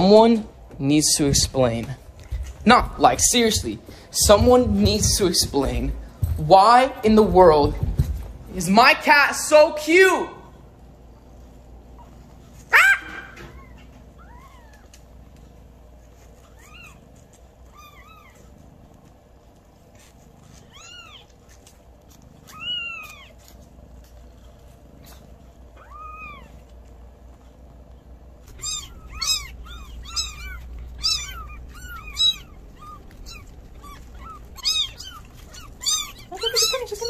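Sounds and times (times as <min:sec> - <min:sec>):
kittens mewing: 0:11.9 - 0:27.0, 0:27.8 - 0:37.0.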